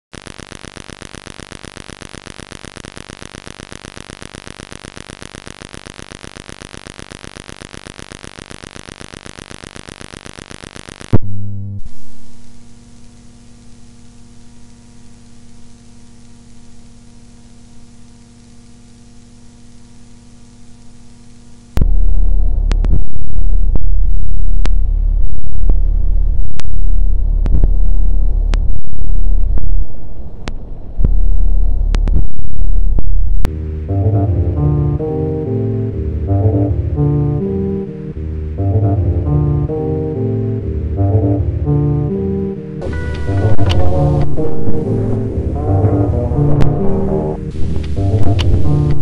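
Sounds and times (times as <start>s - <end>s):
loud electronic burst: 0.1s - 11.2s
rapid pulsing electronic buzz: 0.1s - 30.0s, 31.0s - 49.0s
loud low rumble with crackles: 0.2s - 49.0s
steady electronic drone: 21.8s - 49.0s.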